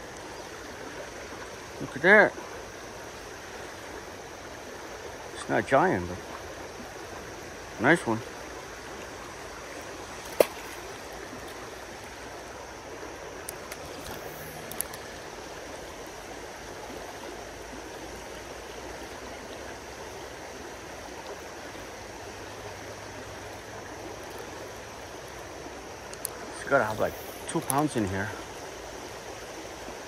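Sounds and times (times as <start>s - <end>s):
creek water running over riffles: 0.0s - 30.0s
faint clicks: 13.4s - 15.1s, 26.1s - 26.4s.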